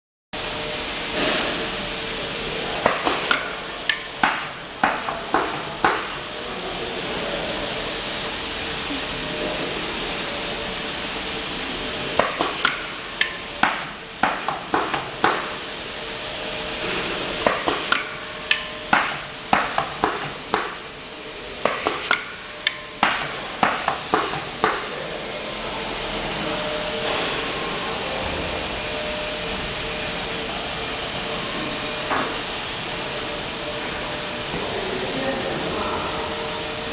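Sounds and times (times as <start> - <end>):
steady air hiss: 0.4 - 36.9
machine clacks and clicks: 12.2 - 15.6, 17.4 - 20.9, 21.6 - 24.9.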